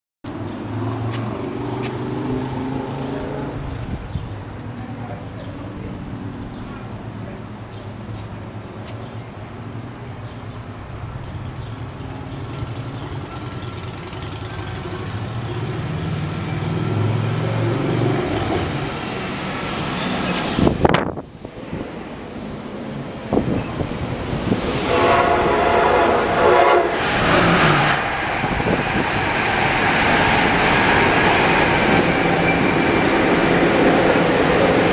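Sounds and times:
train rumble: 0:03.1 - 0:34.9
train wheel noise: 0:12.1 - 0:34.9.

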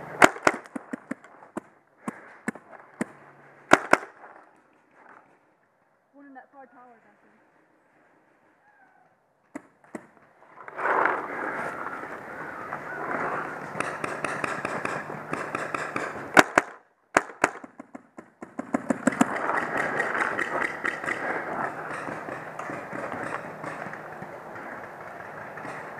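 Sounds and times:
paintball markers firing: 0:00.2 - 0:04.4, 0:13.4 - 0:25.9
steady rough noise: 0:18.7 - 0:25.9.

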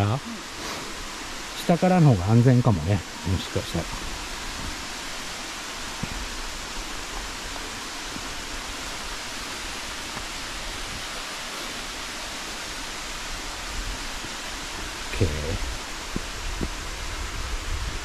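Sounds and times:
mountain stream rushing: 0:00.0 - 0:18.0.

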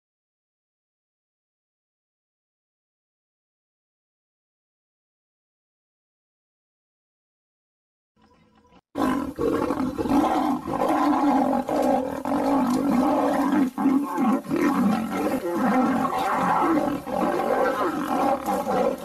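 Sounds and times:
lion roaring and growling: 0:09.0 - 0:19.0.

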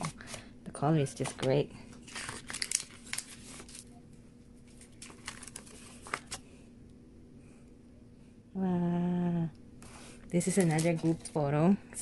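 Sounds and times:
paper rustling: 0:01.2 - 0:03.9, 0:04.6 - 0:06.5, 0:09.9 - 0:11.4.

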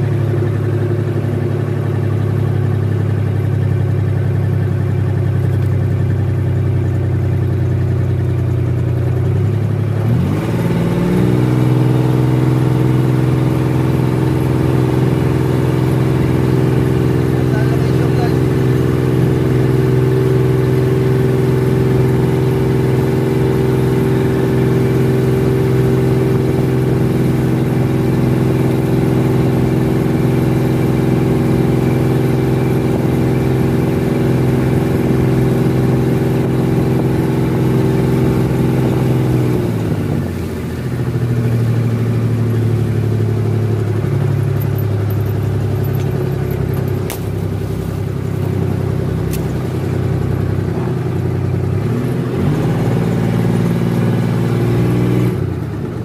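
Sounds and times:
boat engine running: 0:00.0 - 0:56.0.

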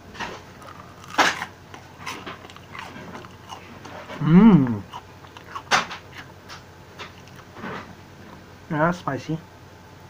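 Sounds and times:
man chewing: 0:00.0 - 0:08.4
man humming mmm: 0:04.1 - 0:05.0.

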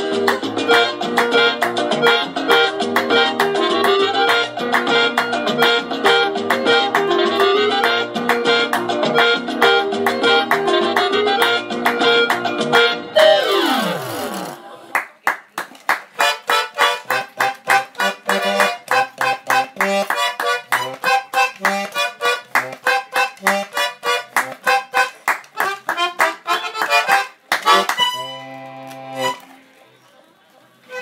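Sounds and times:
accordion playing chords: 0:00.0 - 0:14.8, 0:16.2 - 0:29.8, 0:30.8 - 0:31.0.

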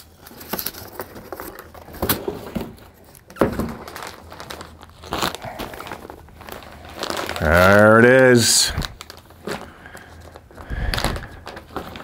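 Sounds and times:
cardboard box rustling and crinkling: 0:00.0 - 0:08.1.

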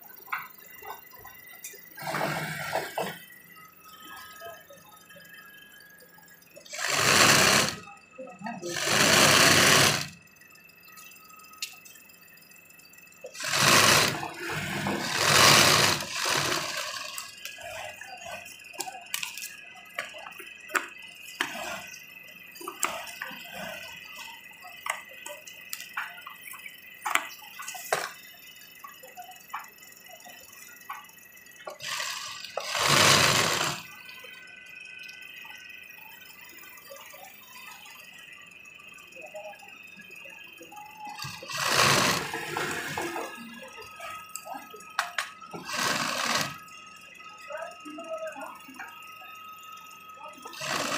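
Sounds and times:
sewing machine stitching: 0:02.0 - 0:03.2, 0:06.7 - 0:07.8, 0:08.6 - 0:10.2, 0:13.3 - 0:17.3, 0:31.8 - 0:33.9, 0:41.2 - 0:43.2, 0:45.6 - 0:46.6, 0:50.5 - 0:50.9.

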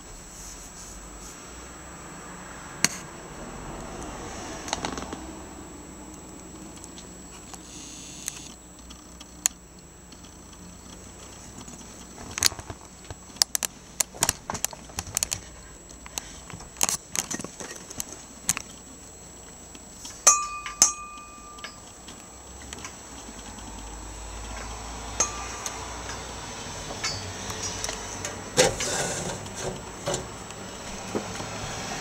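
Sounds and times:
metallic ring: 0:20.2 - 0:21.9, 0:25.1 - 0:26.3, 0:27.0 - 0:27.8.

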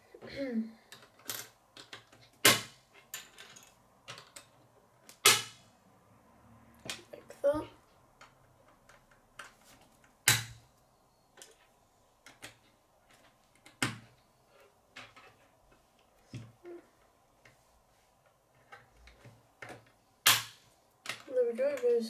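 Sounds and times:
plastic pieces clicking together: 0:00.9 - 0:05.4.

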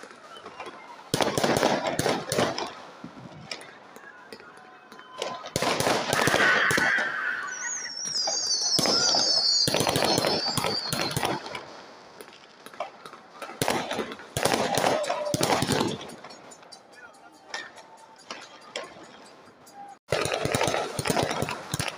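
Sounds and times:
fireworks bangs and crackles: 0:00.0 - 0:21.9
firework whistle falling in pitch: 0:04.9 - 0:11.7.

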